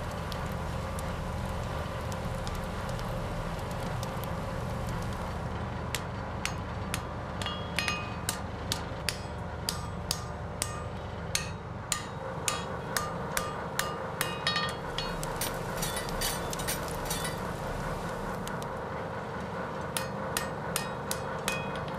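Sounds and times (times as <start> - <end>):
low steady hum: 0.0 - 21.9
hammer striking punch on anvil: 6.4 - 17.4, 20.0 - 21.9.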